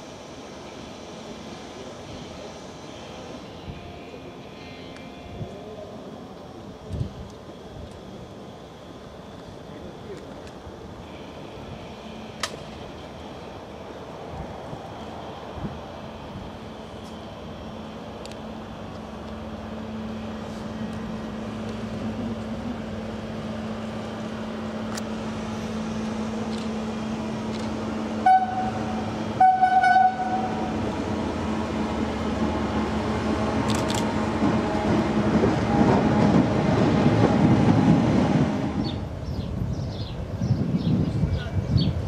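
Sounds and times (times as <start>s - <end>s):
diesel locomotive engine hum: 0.0s - 42.0s
locomotive horn toots: 28.2s - 30.7s.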